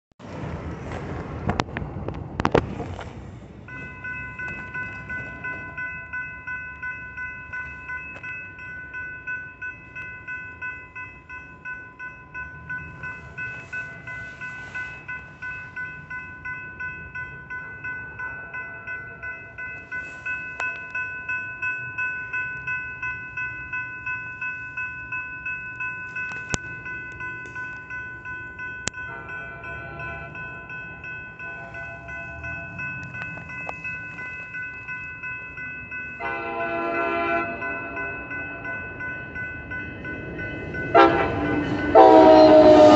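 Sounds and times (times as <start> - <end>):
railroad crossing bell ringing: 3.5 - 42.9.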